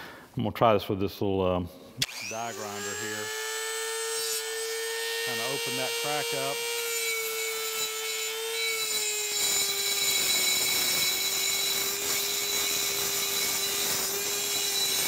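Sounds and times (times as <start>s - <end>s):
rotary tool high whine: 2.0s - 15.0s
gritty grinding on metal: 5.2s - 15.0s.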